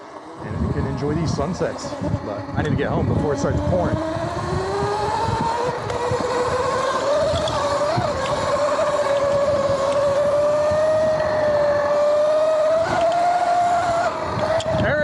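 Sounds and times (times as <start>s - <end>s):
electric motor and chain whine: 0.0s - 15.0s
low uneven rumble: 0.3s - 4.4s.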